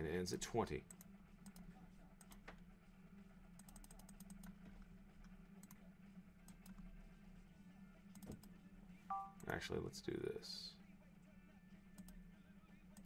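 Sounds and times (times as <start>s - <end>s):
keyboard and mouse clicks: 3.6s - 4.6s, 8.1s - 8.5s.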